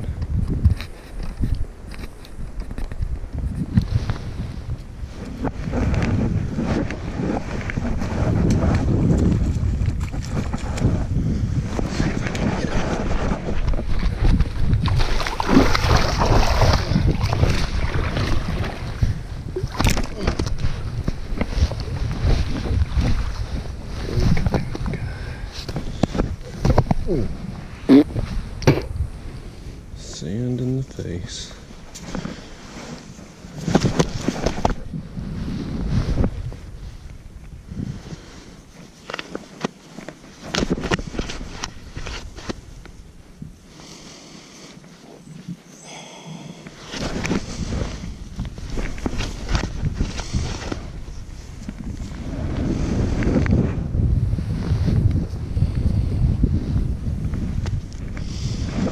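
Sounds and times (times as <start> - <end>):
wind buffeting microphone: 0.0 - 39.0, 46.3 - 58.9
fish slapping on wet sand: 14.8 - 19.0.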